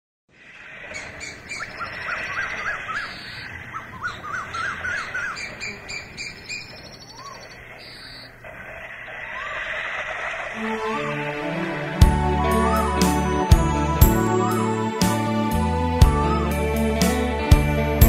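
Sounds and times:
high bird chatter: 0:00.4 - 0:10.6
repeated up-and-down bird chirps: 0:00.9 - 0:10.6.

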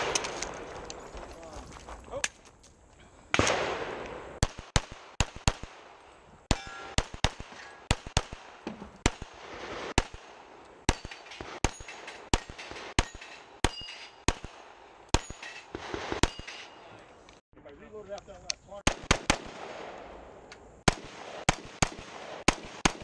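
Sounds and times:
pistol shots cracking: 0:00.0 - 0:00.9, 0:03.3 - 0:16.8, 0:18.8 - 0:20.1, 0:20.9 - 0:23.0.

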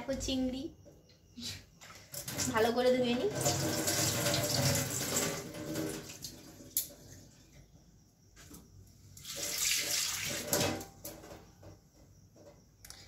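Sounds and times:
running water: 0:02.1 - 0:07.0, 0:09.2 - 0:10.8.

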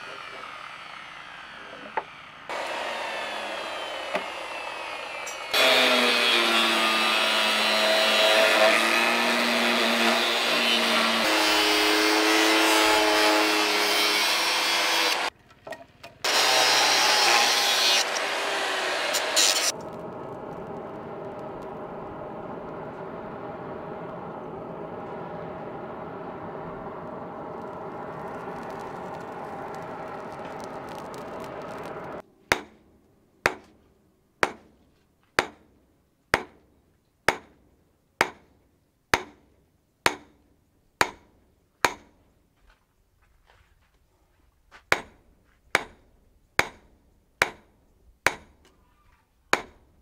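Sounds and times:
forge air blower humming: 0:18.0 - 0:32.2
hammer striking steel on anvil: 0:32.5 - 0:32.8, 0:39.2 - 0:39.4, 0:40.1 - 0:40.3, 0:41.0 - 0:42.1, 0:45.8 - 0:46.0, 0:46.6 - 0:46.8, 0:48.3 - 0:48.5.

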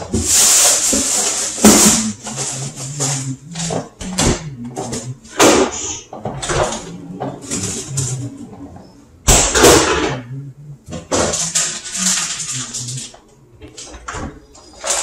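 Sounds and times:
packaging rustling: 0:00.0 - 0:03.9, 0:11.1 - 0:15.0
refrigerator door opening and shutting: 0:01.5 - 0:08.6, 0:09.2 - 0:15.0.

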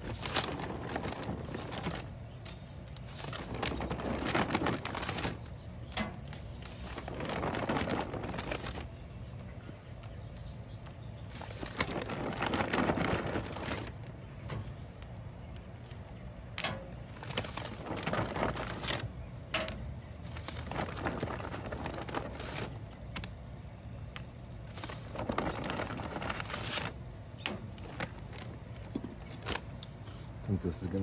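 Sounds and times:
rustling: 0:00.0 - 0:09.0, 0:11.2 - 0:14.1, 0:24.6 - 0:29.7.

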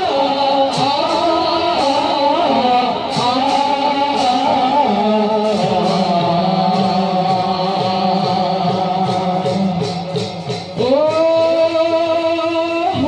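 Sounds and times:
music with singing: 0:00.0 - 0:13.0.

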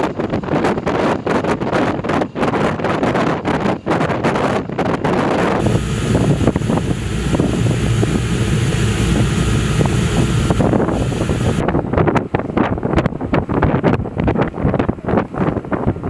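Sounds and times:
rush of wind and water: 0:00.0 - 0:16.0
wind buffeting microphone: 0:00.0 - 0:16.0.

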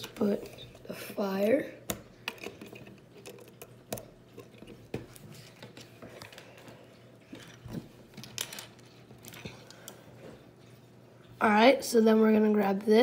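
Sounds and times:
plastic bricks clicking and clattering: 0:08.2 - 0:09.5.

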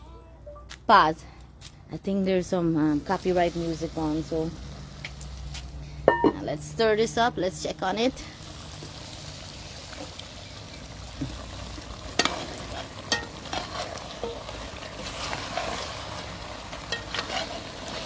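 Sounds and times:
ribs sizzling in a pot: 0:02.7 - 0:05.8, 0:06.4 - 0:18.0
spoon striking a metal pot: 0:06.1 - 0:06.4, 0:13.1 - 0:13.4
spoon scraping a pot: 0:12.2 - 0:14.4, 0:16.9 - 0:18.0.

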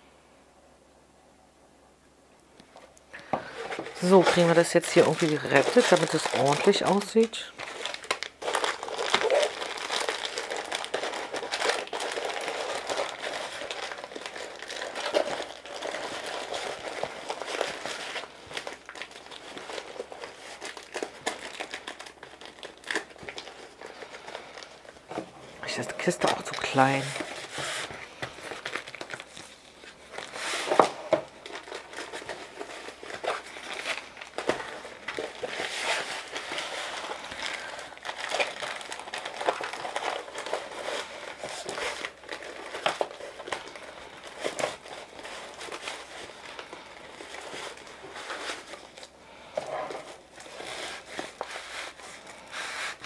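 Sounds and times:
plastic and cardboard crinkling: 0:02.7 - 0:53.0.

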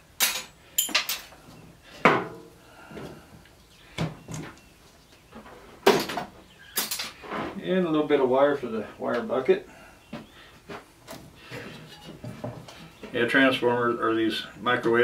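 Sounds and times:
scrap metal parts clattering: 0:00.2 - 0:01.4, 0:06.8 - 0:07.2.

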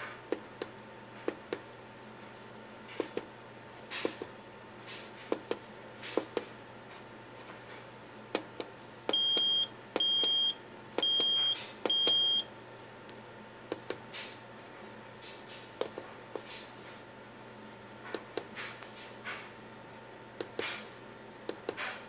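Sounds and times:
high-pitched buzzer beeps: 0:09.1 - 0:12.5.

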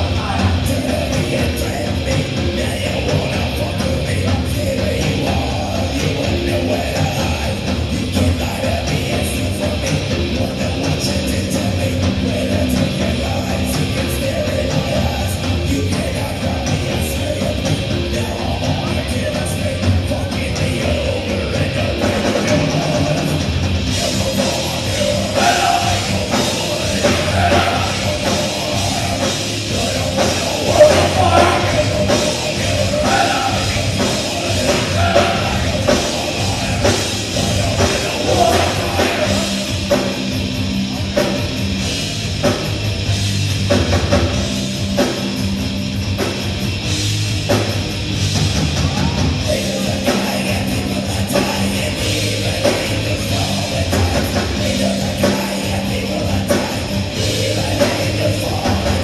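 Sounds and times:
live metal band playing: 0:00.0 - 0:59.0
person singing: 0:24.0 - 0:40.1.

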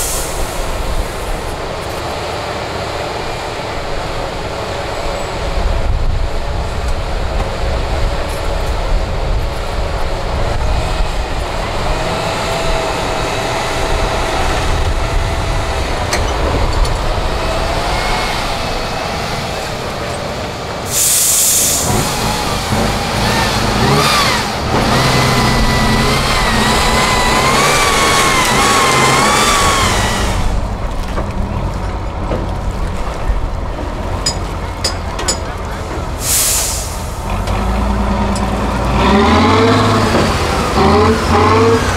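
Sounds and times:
diesel truck engine labouring: 0:00.0 - 0:41.9
short hiss: 0:20.9 - 0:21.9, 0:36.2 - 0:37.2.

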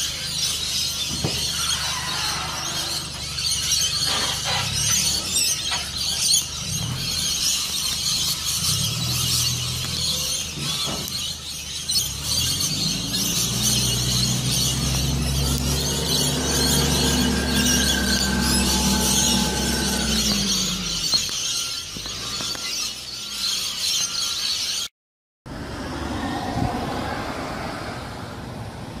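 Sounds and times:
engine running low: 0:00.0 - 0:22.6
parrots screeching and chattering: 0:00.0 - 0:24.9
street noise: 0:00.0 - 0:24.9, 0:25.5 - 0:29.0.

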